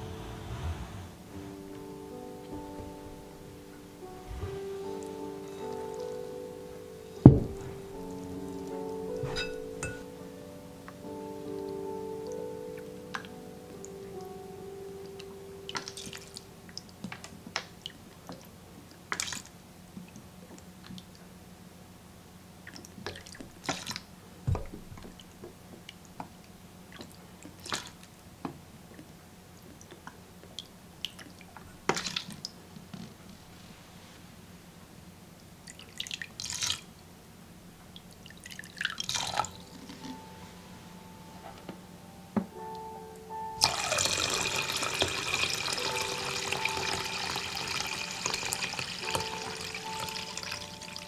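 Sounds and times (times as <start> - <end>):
liquid trickling and dripping: 35.6 - 36.9, 37.9 - 40.2, 43.6 - 51.0.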